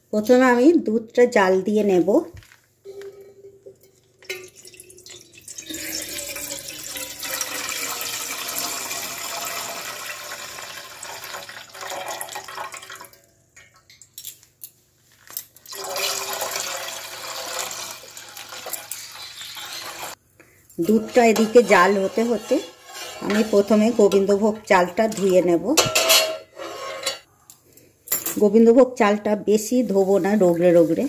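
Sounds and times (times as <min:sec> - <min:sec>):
milk pouring into a pot: 0:04.0 - 0:13.2, 0:15.7 - 0:20.2.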